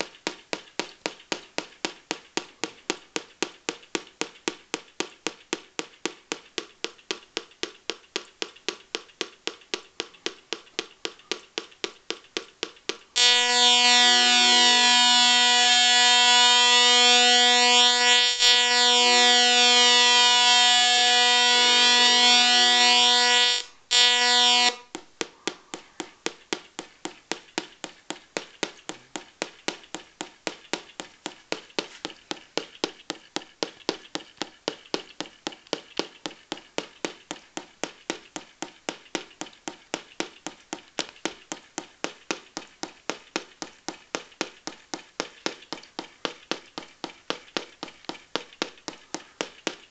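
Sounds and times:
buzzy electronic tone: 13.2s - 24.9s.

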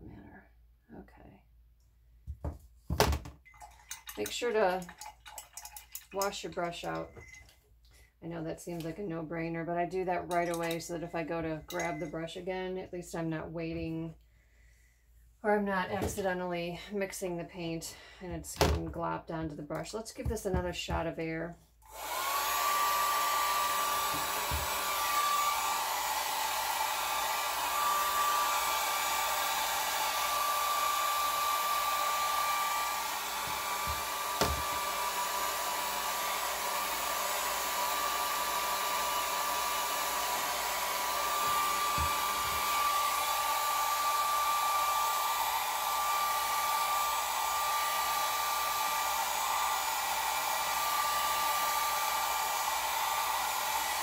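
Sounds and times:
hair dryer running: 21.8s - 54.0s.

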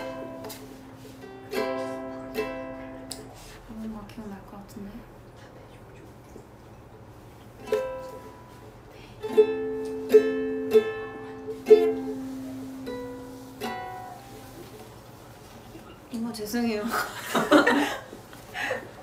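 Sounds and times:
ukulele strummed slowly: 0.0s - 3.7s, 7.5s - 15.4s.

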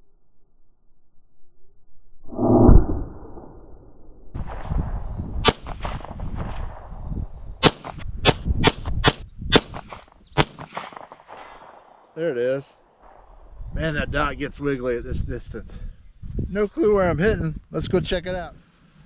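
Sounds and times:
pistol shots: 5.4s - 6.8s, 7.6s - 12.1s.

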